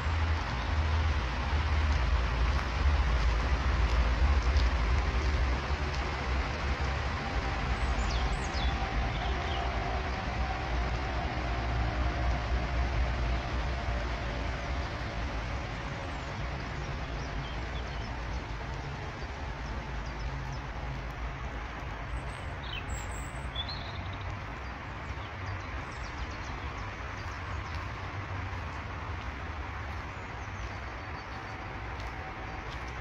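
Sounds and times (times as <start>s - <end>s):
songbird chirps: 7.6s - 10.4s, 14.9s - 33.0s.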